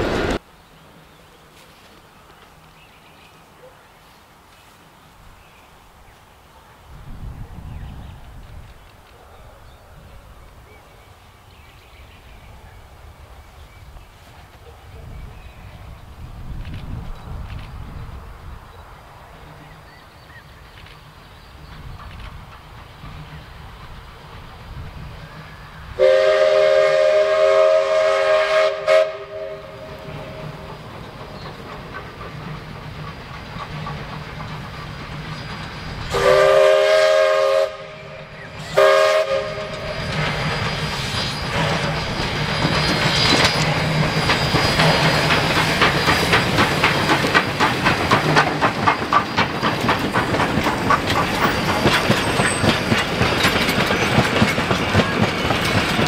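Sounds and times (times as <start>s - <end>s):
train wheels clicking over rail joints: 19.5s - 25.9s, 29.7s - 37.7s, 38.4s - 56.0s
steam locomotive chime whistle: 25.3s - 30.7s, 35.9s - 46.6s.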